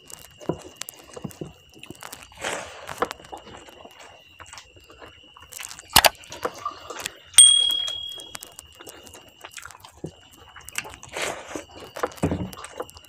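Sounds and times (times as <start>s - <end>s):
eating by hand and chewing: 0.0s - 7.4s, 8.1s - 13.0s
bright metallic ding: 7.4s - 8.4s
faint high whine: 7.4s - 8.4s.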